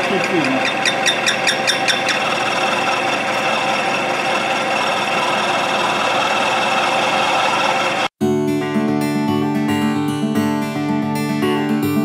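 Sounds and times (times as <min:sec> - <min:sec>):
milling machine cutting steel: 0:00.0 - 0:08.1.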